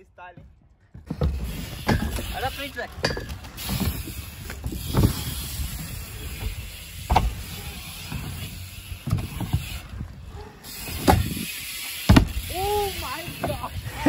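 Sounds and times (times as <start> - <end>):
bike tyres rumbling on wood: 0.4 - 14.0
wheels knocking on wood: 0.4 - 14.0.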